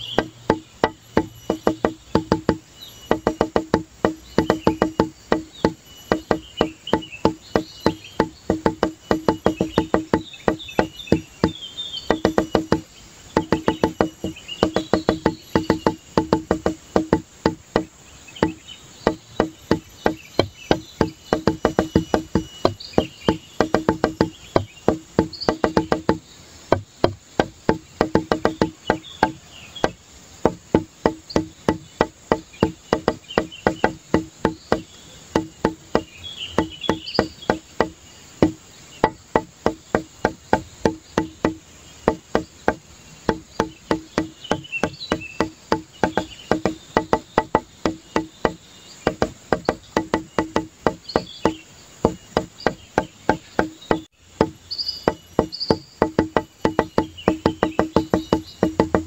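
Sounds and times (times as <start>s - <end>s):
wooden struck notes music: 0.0s - 59.0s.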